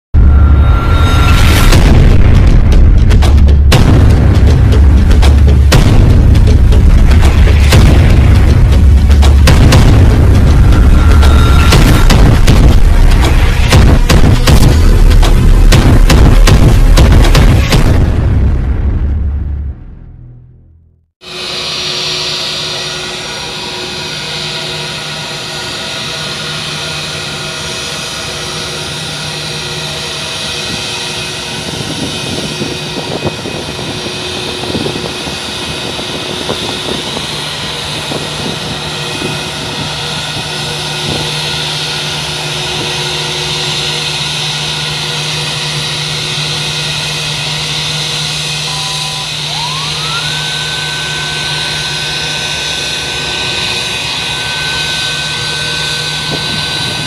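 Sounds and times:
rising whine: 0.1 - 57.0
jet engine hum and hiss: 21.2 - 57.0.

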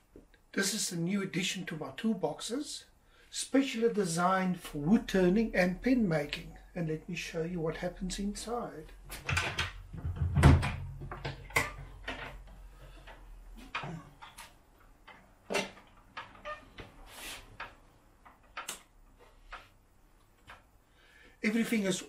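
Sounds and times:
wooden cabinet doors opening: 9.1 - 12.5
loud knock and bump: 9.9 - 11.2
sharp clicks and taps: 17.6 - 18.9.

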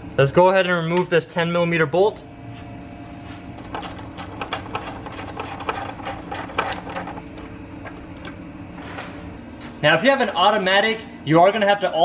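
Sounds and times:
hand ratchet clicking: 3.6 - 7.2.

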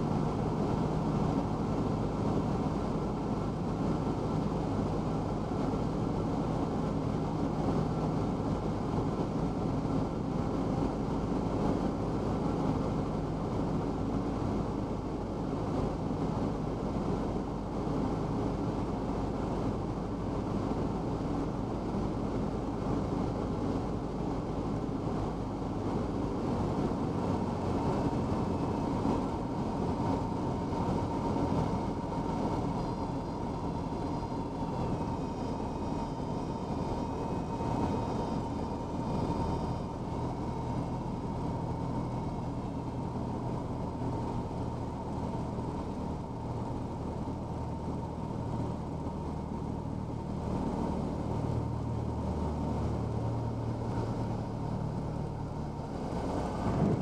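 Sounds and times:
airplane engine and propeller droning: 0.0 - 57.0
airflow noise: 17.1 - 57.0.

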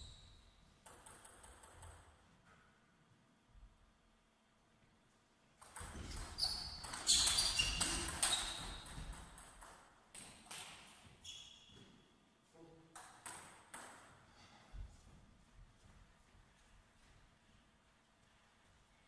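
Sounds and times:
short high squeaks: 6.1 - 9.0, 11.2 - 11.8.

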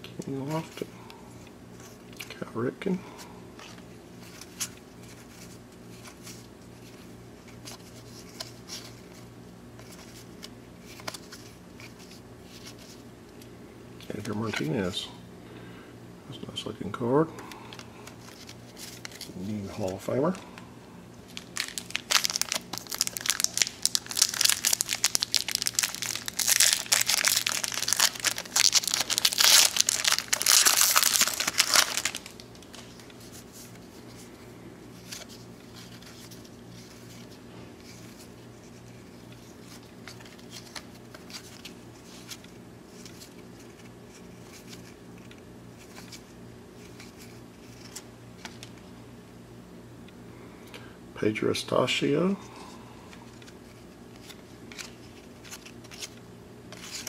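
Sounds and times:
wrapper tearing and crinkling: 21.3 - 33.1.

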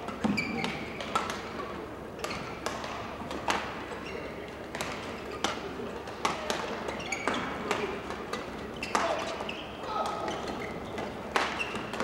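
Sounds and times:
shoes squeaking on court: 0.0 - 1.0, 3.9 - 4.4, 6.8 - 12.0.

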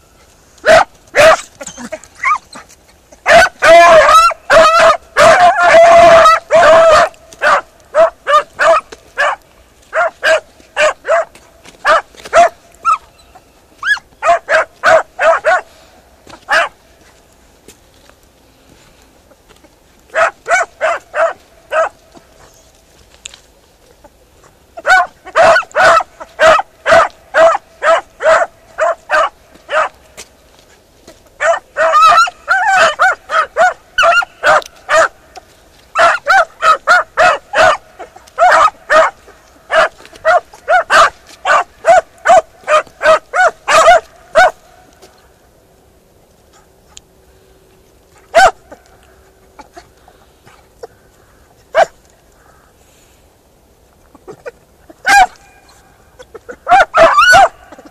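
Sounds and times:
hounds barking: 0.6 - 2.6, 3.2 - 16.8, 20.1 - 22.6, 24.8 - 30.2, 31.4 - 44.7, 48.1 - 50.9, 51.7 - 52.1, 54.2 - 57.9.

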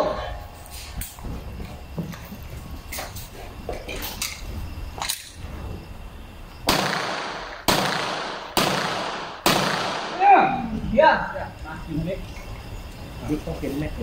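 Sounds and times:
gunshots with echoing tail: 6.7 - 10.2.

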